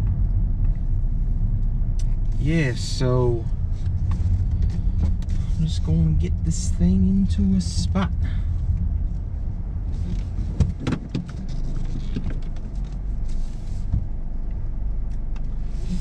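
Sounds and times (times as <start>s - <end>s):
car engine and road hum: 0.0s - 16.0s
sharp clicks and knocks: 10.1s - 13.0s.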